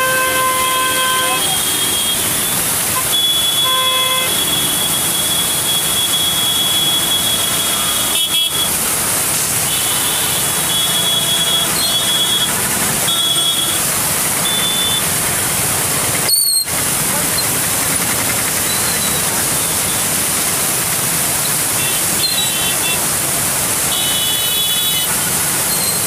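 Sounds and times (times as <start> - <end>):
floodwater rushing: 0.0 - 26.0.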